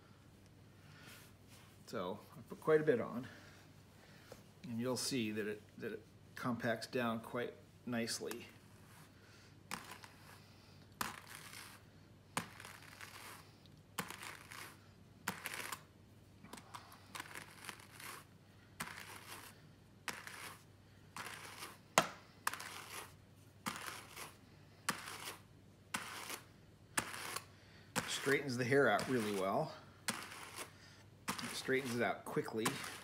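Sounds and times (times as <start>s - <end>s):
hand cards brushing fibre: 8.2s - 33.0s.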